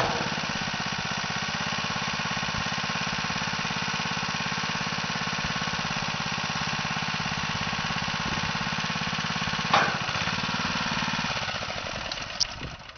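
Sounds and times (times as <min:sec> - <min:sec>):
loud metal clunk: 0:00.0 - 0:00.6, 0:09.6 - 0:10.3
small petrol engine running: 0:00.0 - 0:12.9.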